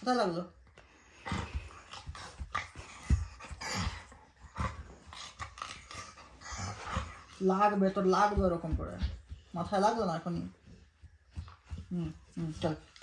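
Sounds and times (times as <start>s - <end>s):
dog play noises and breathing: 0.0s - 13.0s
bedding rustling: 1.0s - 13.0s
soft thumps: 8.0s - 12.7s.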